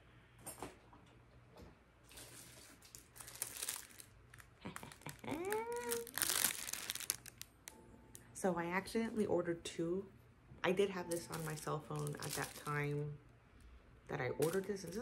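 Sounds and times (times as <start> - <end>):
plastic wrapping crinkling: 2.0 - 8.3, 11.1 - 13.0, 14.3 - 15.0.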